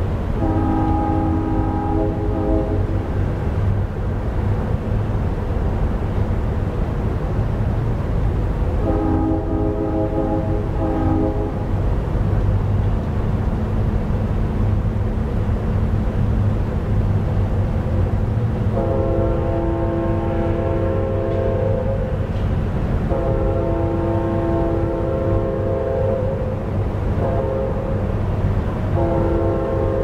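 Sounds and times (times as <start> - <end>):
distant train horn blasts: 0.3 - 3.3, 8.7 - 11.9, 18.7 - 22.4, 23.0 - 28.2, 28.8 - 30.0.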